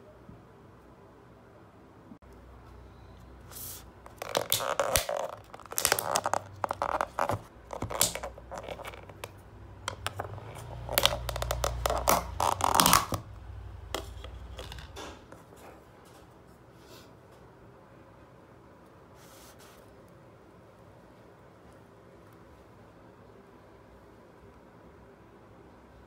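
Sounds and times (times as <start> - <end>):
plastic tub crackling and creaking: 4.0 - 15.1.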